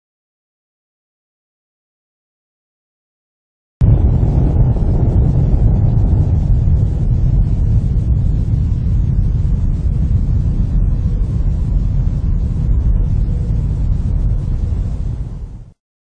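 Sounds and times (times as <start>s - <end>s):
explosion deep rumble: 3.8s - 15.8s.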